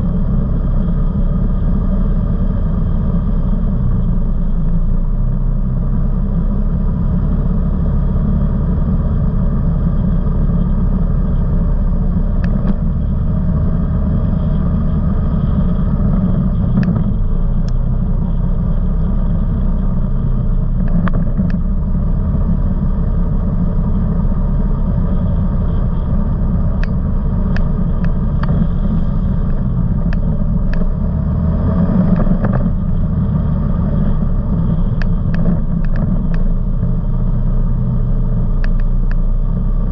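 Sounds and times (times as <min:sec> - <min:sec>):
off-road vehicle engine rumbling: 0:00.0 - 0:39.9
sharp clicks and rattles: 0:16.6 - 0:17.8, 0:20.8 - 0:21.7, 0:26.7 - 0:31.0, 0:32.0 - 0:33.0, 0:34.4 - 0:36.9, 0:38.6 - 0:39.2.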